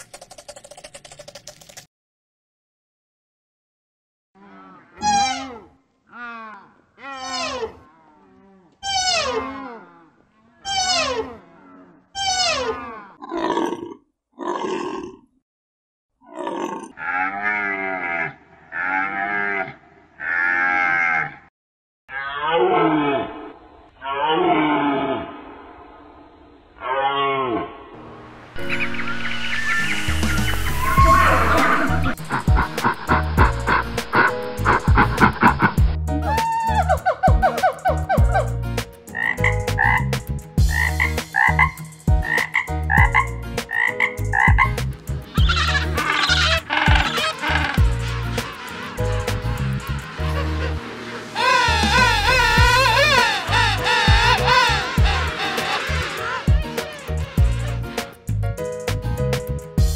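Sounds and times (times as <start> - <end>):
tree frog croaking: 39.1 - 40.1, 40.7 - 44.8, 45.4 - 48.0
deer stag calling: 45.4 - 50.1, 51.4 - 57.8.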